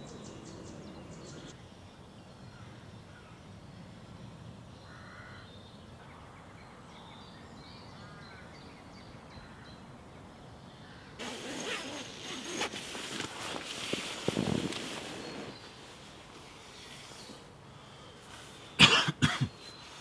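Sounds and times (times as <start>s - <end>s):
birds calling faintly: 0.0s - 20.0s
fabric rustling and crinkling: 11.2s - 17.5s.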